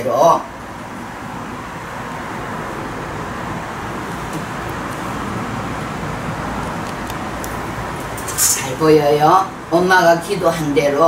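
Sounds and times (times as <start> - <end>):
steady rushing noise: 0.4 - 11.0.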